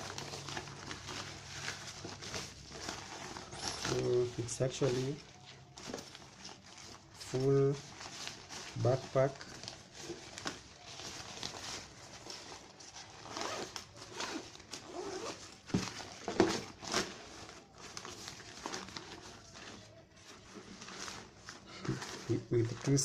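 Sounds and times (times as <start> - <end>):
nylon fabric rustling: 0.0 - 23.0
zipper being pulled: 13.2 - 15.4.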